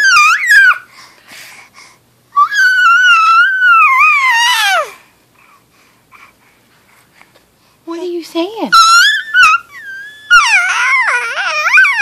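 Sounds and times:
baby squealing: 0:00.0 - 0:00.9, 0:02.4 - 0:05.0, 0:08.7 - 0:12.0.

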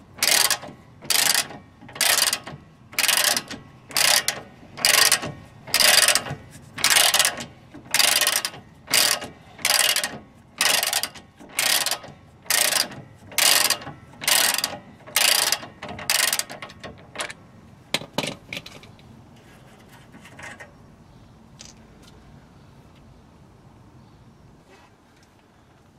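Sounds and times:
socket ratchet clicking: 0:00.2 - 0:17.4.

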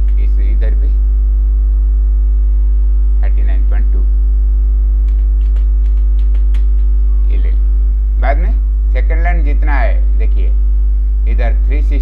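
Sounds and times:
electrical mains hum: 0:00.0 - 0:12.0
person speaking: 0:03.2 - 0:04.2, 0:06.3 - 0:10.6, 0:11.2 - 0:12.0
computer keys clicking: 0:05.0 - 0:06.9.

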